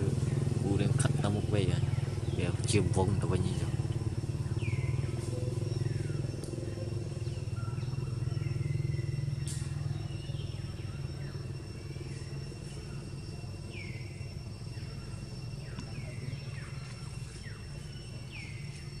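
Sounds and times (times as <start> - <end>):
motorcycle engine rumble: 0.0 - 19.0.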